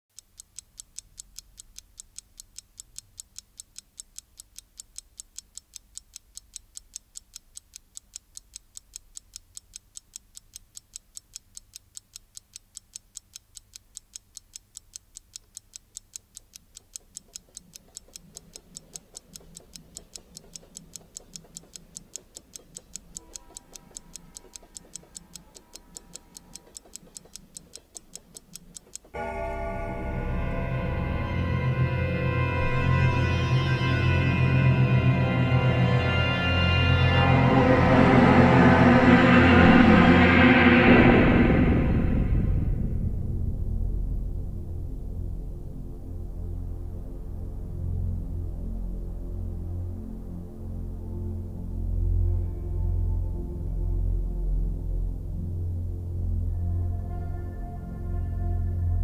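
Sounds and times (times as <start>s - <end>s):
clock ticking: 0.1s - 30.7s, 37.4s - 42.7s
low dark music tones: 27.6s - 59.0s
higher music tones: 29.1s - 43.1s.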